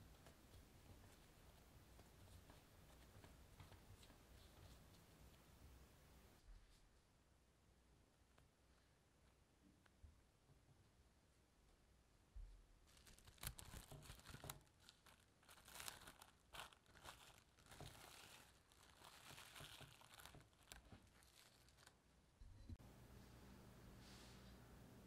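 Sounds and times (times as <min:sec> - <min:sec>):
cling wrap crinkling: 0:12.8 - 0:22.1.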